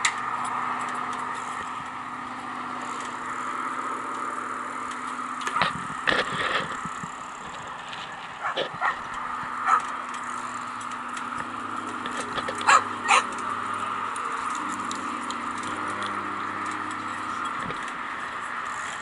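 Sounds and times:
small dog barking: 0:08.4 - 0:09.0, 0:09.6 - 0:09.9, 0:12.6 - 0:13.3.

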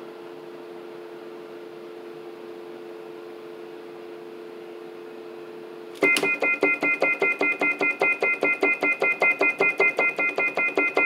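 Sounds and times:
keyboard dial tone chord: 0:06.0 - 0:11.0
pulsed high keyboard chord: 0:06.0 - 0:11.0.

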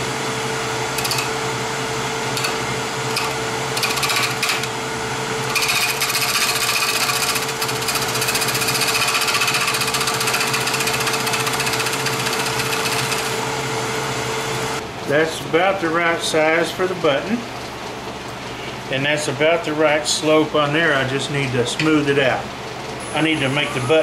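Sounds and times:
wood lathe humming: 0:00.0 - 0:14.8
gouge cutting spinning wood: 0:00.8 - 0:01.4, 0:02.2 - 0:13.7.

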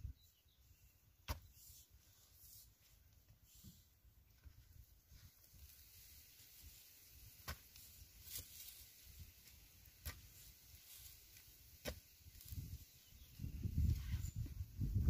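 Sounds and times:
metal pipe striking hard soil: 0:07.4 - 0:08.6, 0:11.7 - 0:12.2.

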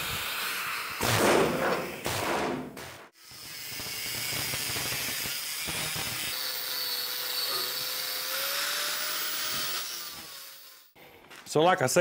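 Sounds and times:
angle grinder grinding metal: 0:03.2 - 0:11.0.

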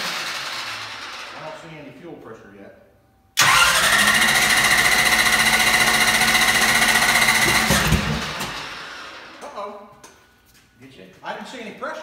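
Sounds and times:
starter cranking engine: 0:03.4 - 0:08.7.

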